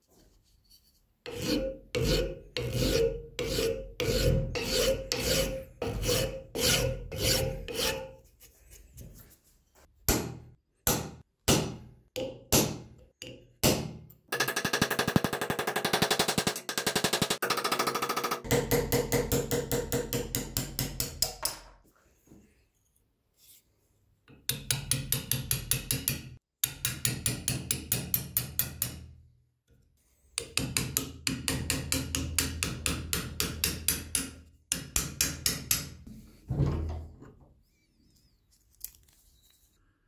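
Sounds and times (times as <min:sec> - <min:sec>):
hammer tapping steel punch: 0:24.4 - 0:29.1, 0:30.4 - 0:36.0.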